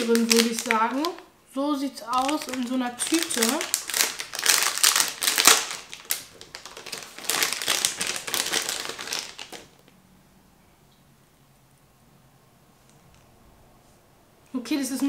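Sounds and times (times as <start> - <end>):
plastic bag crinkling: 0.0 - 1.3, 1.9 - 9.9.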